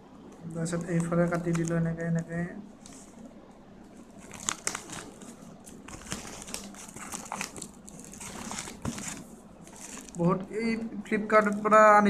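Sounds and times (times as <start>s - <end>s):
sharp plastic crackles: 0.4s - 3.3s, 3.9s - 10.5s
plastic wrapping crinkling: 0.5s - 3.3s, 3.9s - 10.5s.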